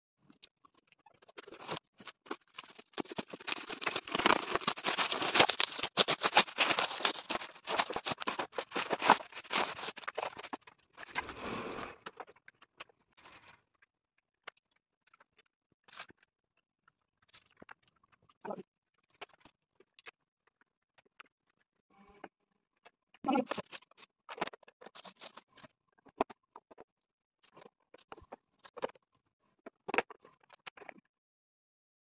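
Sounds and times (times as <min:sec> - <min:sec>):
cardboard and plastic crinkling: 0:01.2 - 0:11.4.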